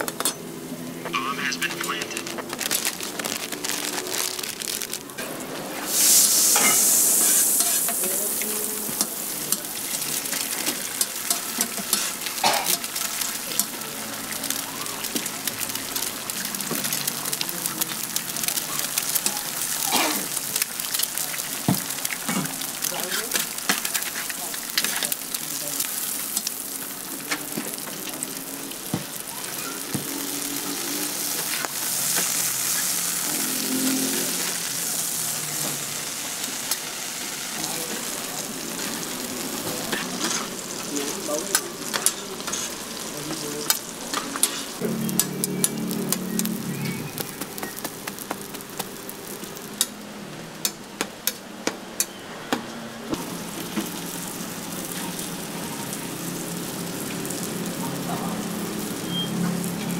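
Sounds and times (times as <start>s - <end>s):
food sizzling on a griddle: 0.4s - 52.2s, 53.1s - 59.9s
metal utensils scraping steel: 5.9s - 8.2s.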